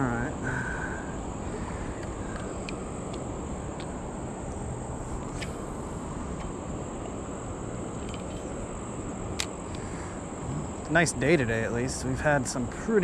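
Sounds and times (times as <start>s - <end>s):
insects chirring: 0.0s - 13.0s
low background noise: 0.0s - 13.0s
faint ticks: 2.0s - 3.9s.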